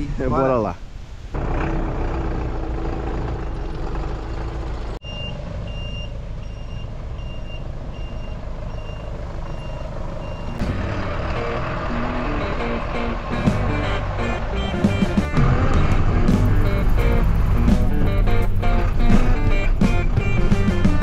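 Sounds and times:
large vehicle engine running: 1.4s - 21.0s
reversing alarm beeping: 5.0s - 10.7s
background music: 10.6s - 21.0s.

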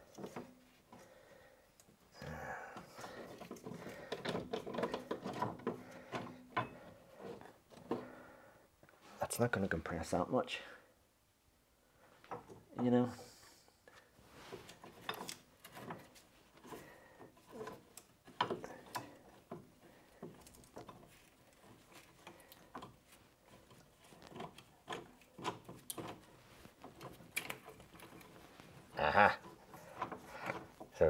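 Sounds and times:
metal clicks and knocks: 17.4s - 28.4s.

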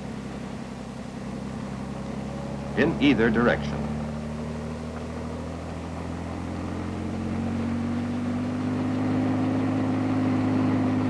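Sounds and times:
helicopter hovering drone: 2.0s - 7.8s.

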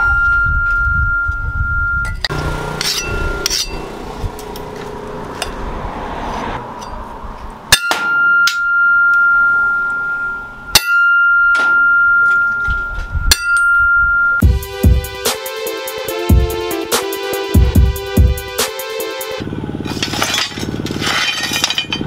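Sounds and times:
high metallic ringing tone: 0.0s - 4.6s, 7.7s - 14.4s
cleaver striking metal rod: 2.1s - 5.6s, 6.7s - 7.1s, 7.7s - 14.4s.

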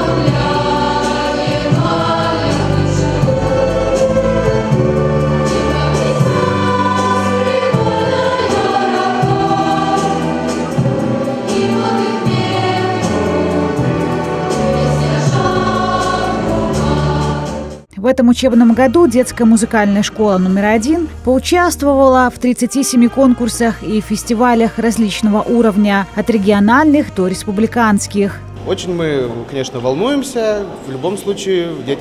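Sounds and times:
children's choir singing: 0.0s - 17.8s.

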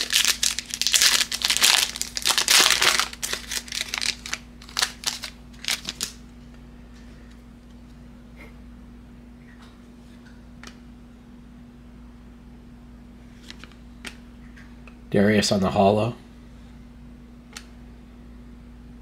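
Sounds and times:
foil wrapper tearing and crinkling: 0.0s - 6.2s.

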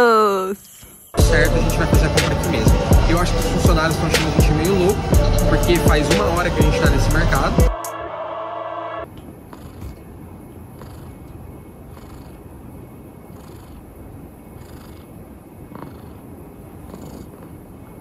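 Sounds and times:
cat purring: 9.4s - 18.0s.

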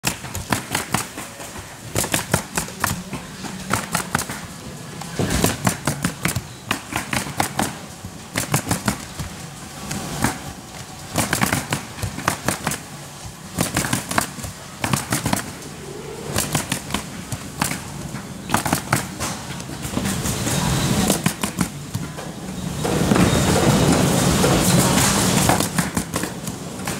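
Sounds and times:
nail gun firing: 0.0s - 4.5s, 5.3s - 9.2s, 11.1s - 12.8s, 13.6s - 15.6s, 16.3s - 17.9s, 18.5s - 19.3s, 21.1s - 21.8s, 25.5s - 26.9s.

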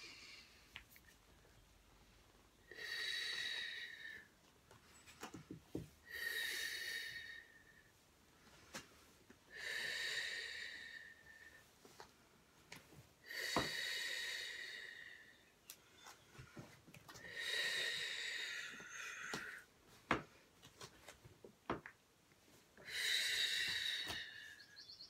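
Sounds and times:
woman breathing: 0.0s - 0.7s, 2.6s - 5.4s, 6.0s - 11.8s, 13.2s - 20.6s, 22.8s - 25.0s.

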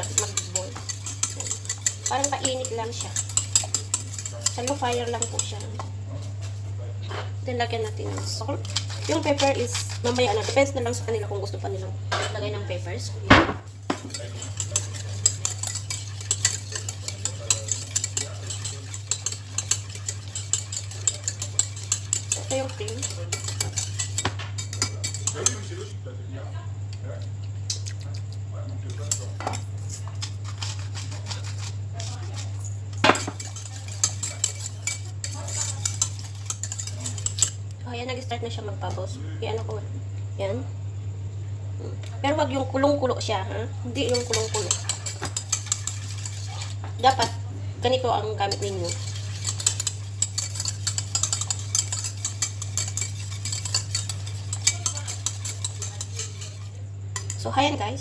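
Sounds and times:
utensil clinking against pan: 0.0s - 5.9s, 13.9s - 25.9s, 28.9s - 37.7s, 44.0s - 47.4s, 48.4s - 57.5s
utensil scraping a pan: 0.0s - 6.3s, 7.1s - 11.7s, 13.6s - 26.0s, 28.9s - 37.7s, 43.9s - 58.0s
steady low hum: 0.0s - 58.0s.

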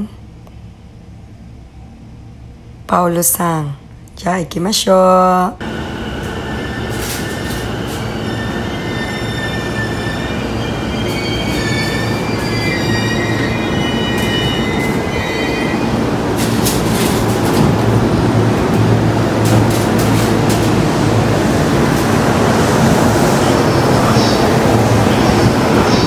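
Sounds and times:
train rumble: 0.0s - 26.0s
train wheels and brakes squealing: 5.7s - 17.4s.

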